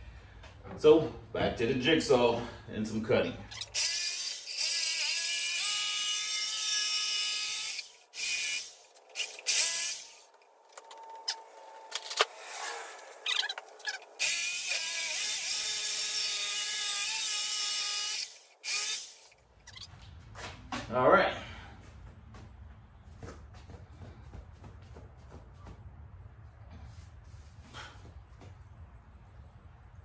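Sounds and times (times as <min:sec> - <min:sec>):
jigsaw cutting wood: 0:03.6 - 0:10.3, 0:14.2 - 0:19.3.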